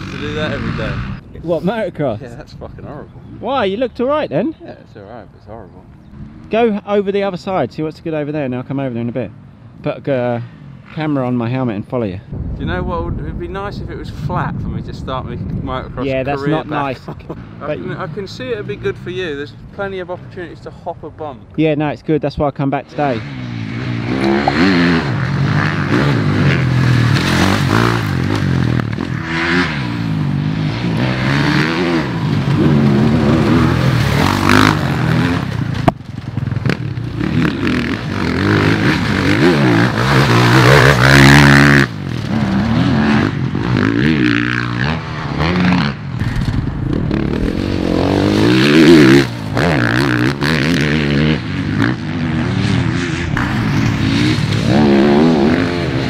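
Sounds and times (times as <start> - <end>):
motocross bike engines revving: 0.0 - 4.5, 15.7 - 20.5, 22.8 - 56.0.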